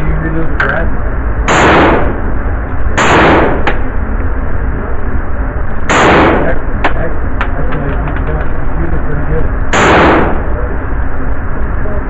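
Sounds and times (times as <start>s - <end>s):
submachine gun single shots: 1.5s - 2.2s, 3.0s - 3.8s, 5.9s - 6.6s, 9.7s - 10.4s.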